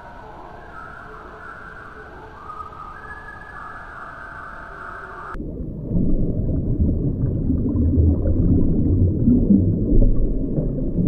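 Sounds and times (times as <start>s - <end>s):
underwater rumble and gurgle: 5.3s - 11.0s.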